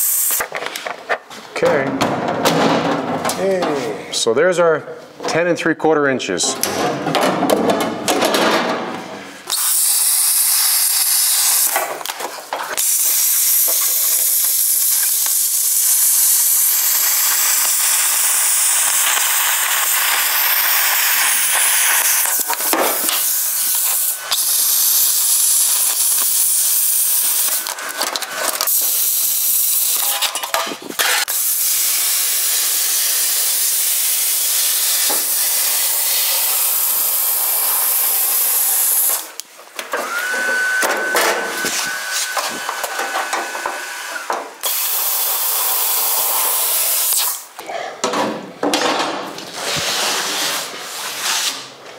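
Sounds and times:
plasma cutter hissing: 0.0s - 0.4s, 9.5s - 11.9s, 12.8s - 28.0s, 28.7s - 30.2s, 31.0s - 39.3s, 44.6s - 47.5s.

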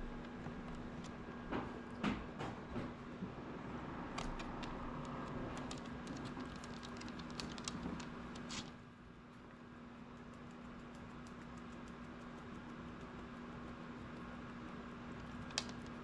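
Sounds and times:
dog claws clicking on wood floor: 4.2s - 8.7s, 15.4s - 16.0s.

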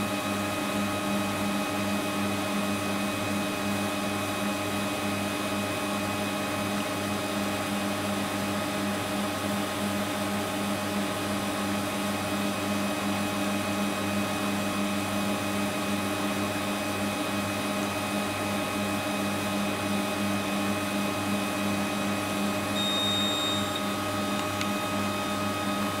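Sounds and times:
short high beep: 22.8s - 24.0s.

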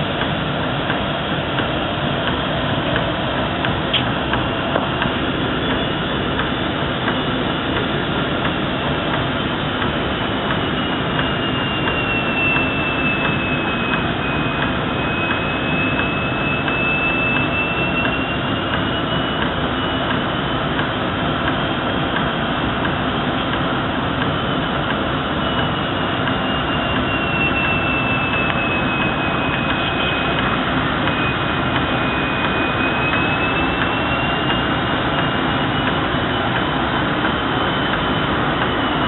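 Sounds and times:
high whistle: 10.5s - 20.7s, 25.3s - 39.0s.

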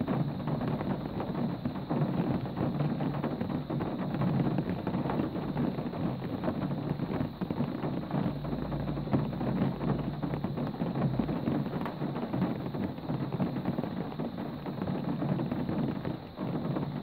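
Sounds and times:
heavy rain on a car: 0.0s - 17.0s.

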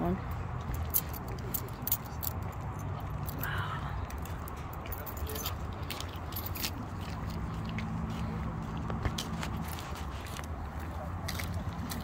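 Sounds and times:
small metal objects jingling: 0.6s - 7.4s.

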